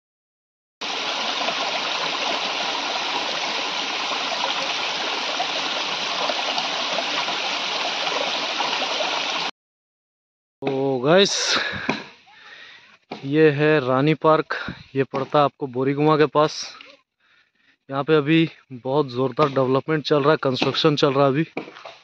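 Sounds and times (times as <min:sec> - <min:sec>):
water pouring over rocks: 0:00.8 - 0:09.5.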